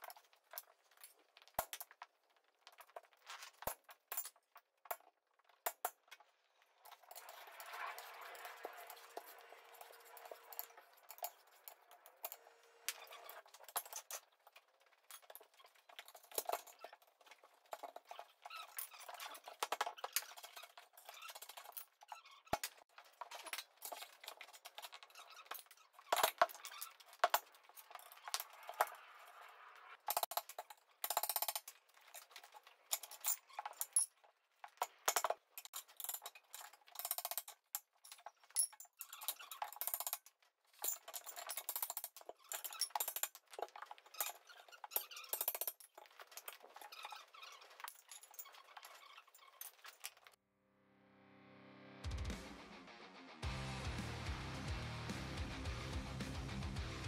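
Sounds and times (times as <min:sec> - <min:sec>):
metal scraping: 0:06.7 - 0:14.4, 0:23.2 - 0:30.3.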